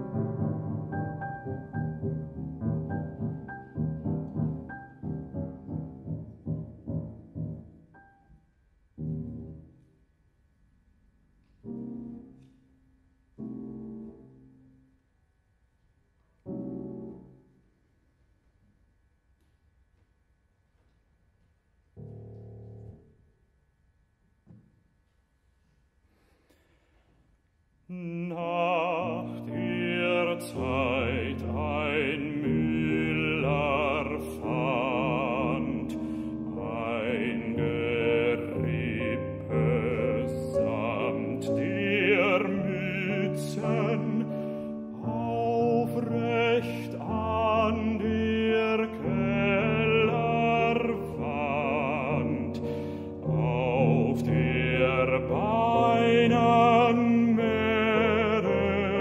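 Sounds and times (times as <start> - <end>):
grand piano: 0.0 - 15.1, 16.2 - 18.0, 27.9 - 59.0
baritone singing operatically: 27.9 - 59.0.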